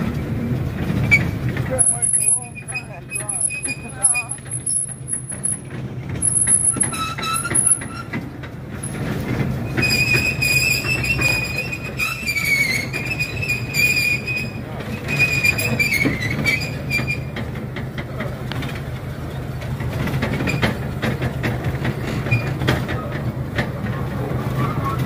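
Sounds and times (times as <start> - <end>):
rail clicks: 0.0 - 25.0
train wheels squealing: 1.0 - 9.0, 9.6 - 17.5, 22.0 - 25.0.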